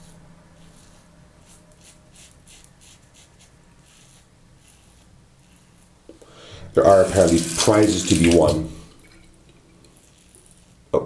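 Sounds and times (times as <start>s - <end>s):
razor scraping stubble: 0.0s - 6.2s.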